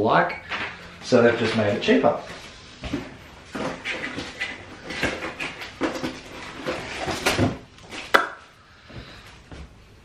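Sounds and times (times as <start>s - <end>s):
rummaging in cardboard box: 2.9s - 7.6s.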